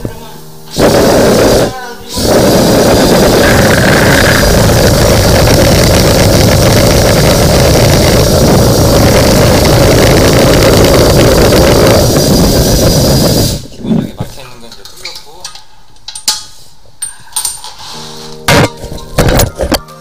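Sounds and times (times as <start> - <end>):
drain cleaning machine motor: 0.8 - 13.6.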